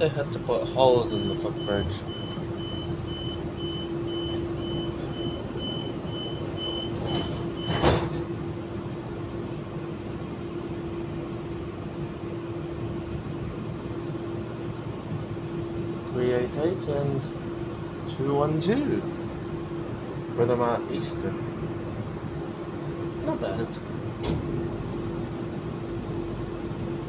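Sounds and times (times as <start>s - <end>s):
train hum: 0.0s - 27.0s
high warning beeps: 0.6s - 7.8s
sliding doors shutting thud: 6.9s - 8.3s, 24.2s - 24.6s.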